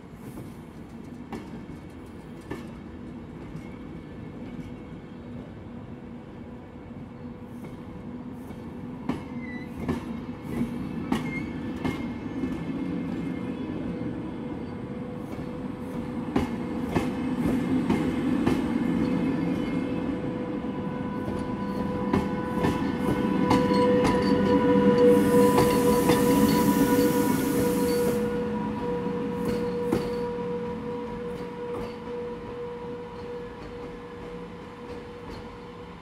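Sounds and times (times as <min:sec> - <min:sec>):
electric locomotive hum: 0:11.7 - 0:36.0.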